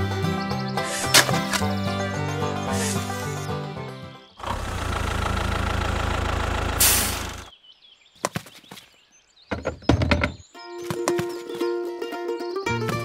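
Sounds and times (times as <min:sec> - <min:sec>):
diesel tractor engine running: 0:01.1 - 0:07.5
rising hiss: 0:02.7 - 0:03.4, 0:06.6 - 0:07.5
engine rumble with knocks: 0:04.4 - 0:07.5.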